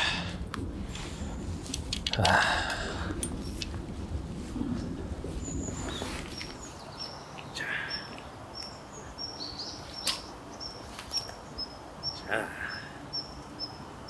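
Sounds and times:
outdoor background noise: 0.0 - 14.0
small bird chirping: 5.4 - 13.8.

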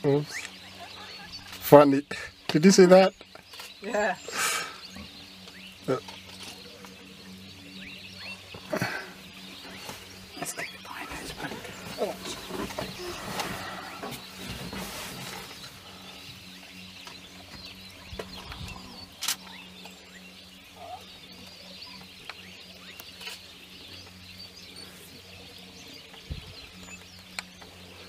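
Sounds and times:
steady low hum: 0.0 - 28.0
wild birds chirping: 0.0 - 28.0.

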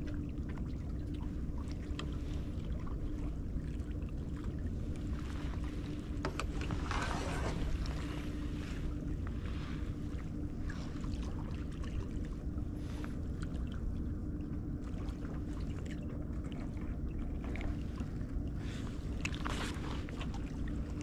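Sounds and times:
faint constant hum: 0.0 - 21.0
wind rumble on microphone: 0.0 - 21.0.

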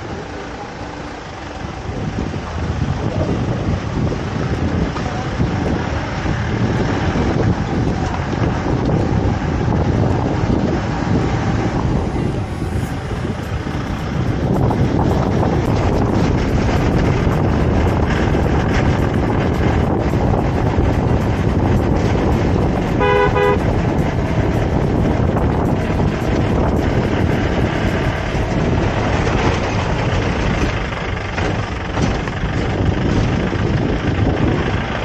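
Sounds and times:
road and vehicle noise: 0.0 - 35.0
vehicle horn pulsed honk: 22.6 - 25.1.

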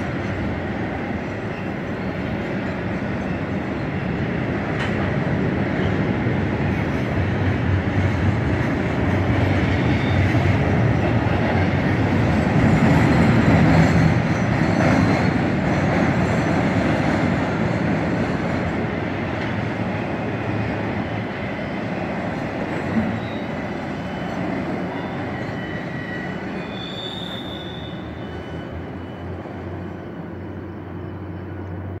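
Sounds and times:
train cars rumbling on bridge: 0.0 - 32.0
wheel squeal: 22.8 - 30.1.

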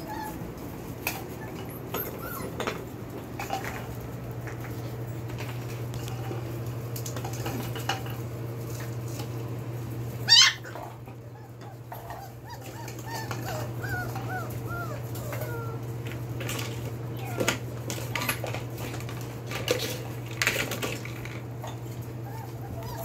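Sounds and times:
puppy yelping and whining: 0.0 - 2.9, 10.2 - 16.0, 16.6 - 17.7, 22.0 - 23.0.

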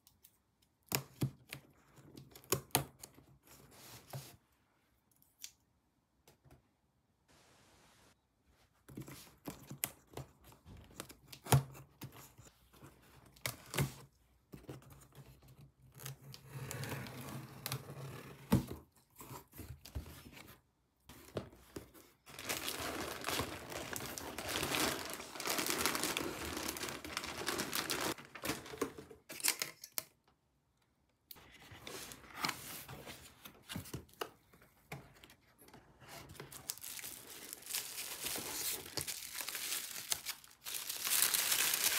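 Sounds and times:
plastic wrapping crinkling: 22.2 - 29.0, 36.4 - 41.9.

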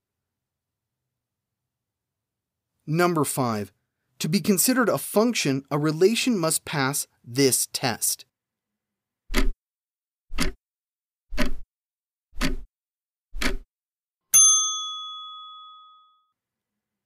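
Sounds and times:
clock ticks: 9.3 - 9.6, 10.3 - 10.6, 11.4 - 11.6, 12.4 - 12.7, 13.4 - 13.7
bell-like ding: 14.3 - 16.4.

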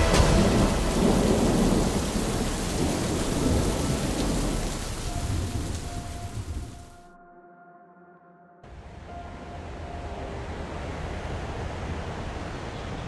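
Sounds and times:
deep thunder rumble: 0.0 - 6.9
heavy rain: 0.0 - 7.0, 8.7 - 13.0.

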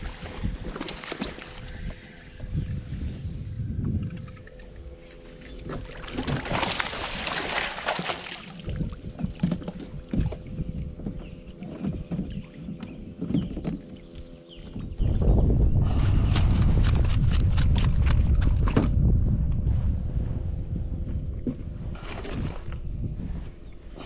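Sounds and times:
water splashing and sloshing: 0.0 - 2.6, 3.8 - 14.9, 21.0 - 24.0
faint steady hum: 0.0 - 24.0.

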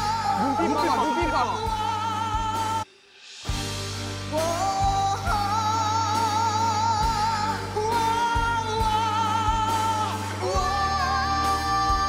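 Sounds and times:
band accompaniment with bass: 0.0 - 2.8, 3.5 - 12.0
girl singing a slow ballad: 4.3 - 12.0.

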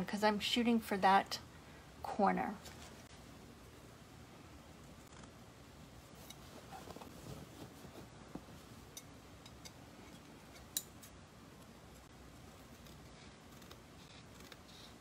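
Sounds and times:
fabric rustling: 2.6 - 3.5, 4.9 - 9.0.

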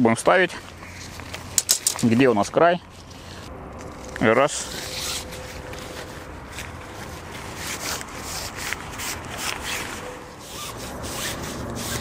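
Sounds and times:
tent fabric rustling: 2.9 - 12.0.

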